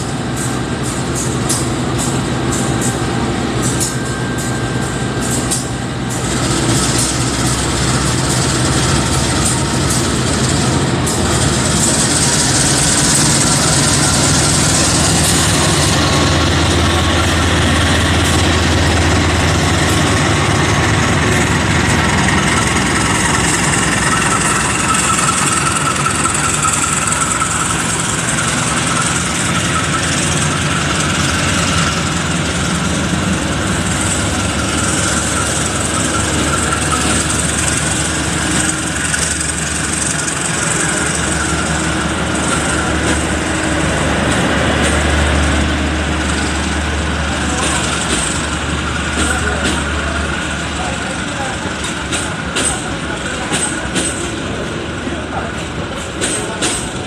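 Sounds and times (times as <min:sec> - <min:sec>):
coaches rolling on rails: 0:00.0 - 0:57.0
diesel locomotive engine: 0:00.0 - 0:57.0.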